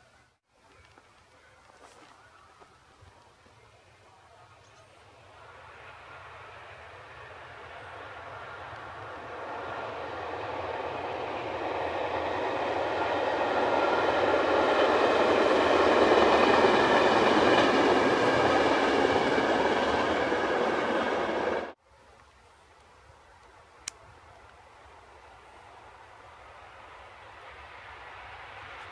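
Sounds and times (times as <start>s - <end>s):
train wheels rumbling on rails: 5.4s - 21.8s.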